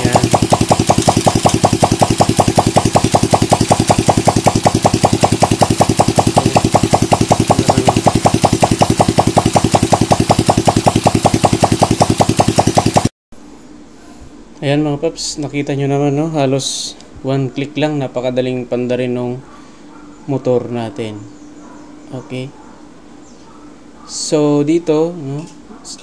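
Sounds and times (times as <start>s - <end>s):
motorcycle engine idling loudly: 0.0s - 13.1s.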